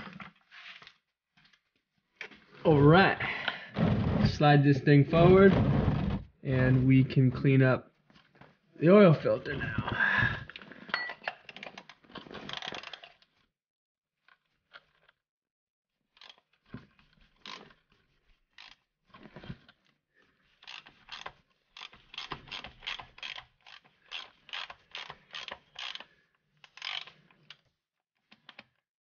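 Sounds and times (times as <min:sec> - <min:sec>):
socket ratchet clicking: 0:20.7 - 0:26.0, 0:26.7 - 0:27.2.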